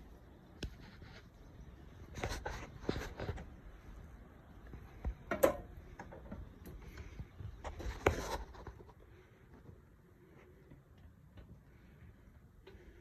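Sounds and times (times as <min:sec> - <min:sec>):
footsteps on metal steps: 0:04.7 - 0:08.0.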